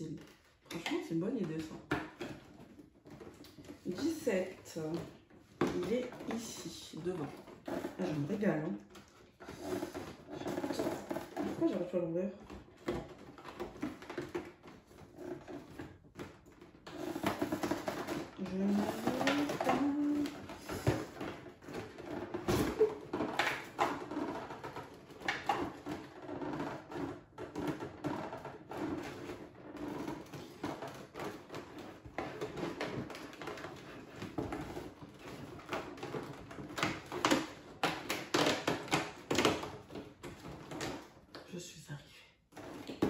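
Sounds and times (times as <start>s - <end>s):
cardboard rustling and scraping: 1.4s - 41.4s.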